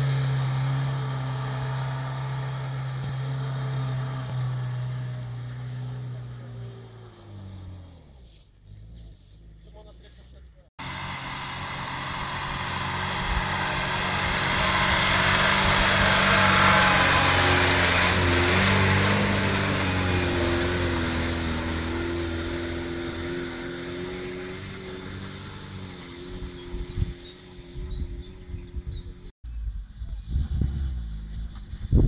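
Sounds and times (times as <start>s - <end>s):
car engine driving past: 10.8s - 28.8s.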